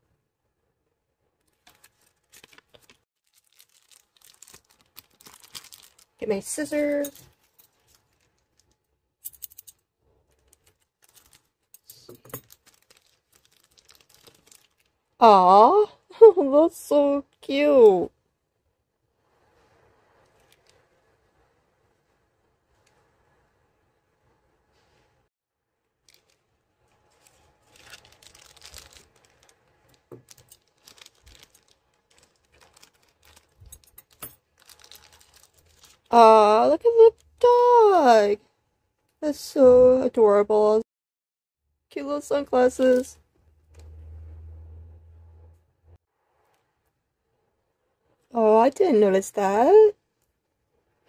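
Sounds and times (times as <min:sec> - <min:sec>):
plastic packet crinkling: 0:01.5 - 0:06.2, 0:06.9 - 0:08.8, 0:10.3 - 0:15.1, 0:26.0 - 0:36.1.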